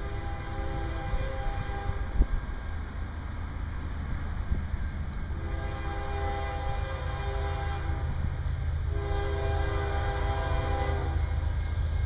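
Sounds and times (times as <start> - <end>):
locomotive air horn chord: 0.0 - 2.2, 5.4 - 12.0.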